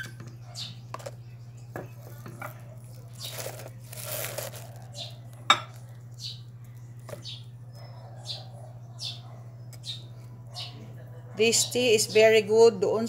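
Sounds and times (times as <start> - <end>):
dried leaves rustling and crinkling: 1.9 - 6.2.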